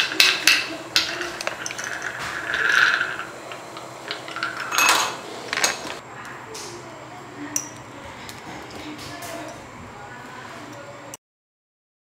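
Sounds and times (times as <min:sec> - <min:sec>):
metal clicks and clinks: 0:00.0 - 0:06.0
metal scraping on metal: 0:00.0 - 0:06.0.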